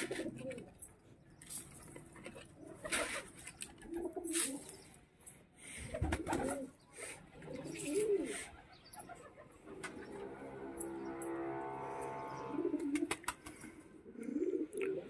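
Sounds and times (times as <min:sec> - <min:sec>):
pigeons cooing: 0:00.0 - 0:00.9, 0:02.1 - 0:04.9, 0:05.8 - 0:15.0
birds feeding clicks and rustles: 0:00.0 - 0:11.4, 0:12.8 - 0:13.8.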